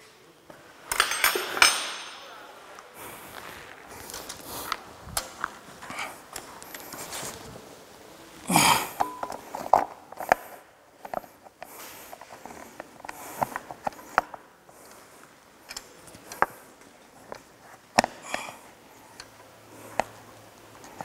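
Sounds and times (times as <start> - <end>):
metallic clicks of tools and parts: 0.9 - 2.2
rustling scrape: 2.6 - 7.7.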